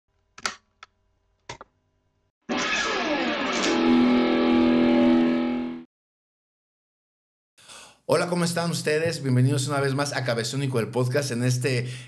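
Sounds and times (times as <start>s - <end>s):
plucked guitar notes: 2.5s - 5.8s
guitar chord sliding down: 2.5s - 5.9s.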